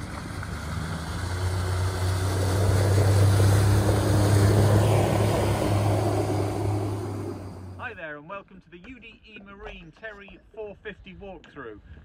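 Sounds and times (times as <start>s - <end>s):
outboard motor hum: 0.0s - 7.8s
water rushing off boat hull: 0.0s - 7.8s.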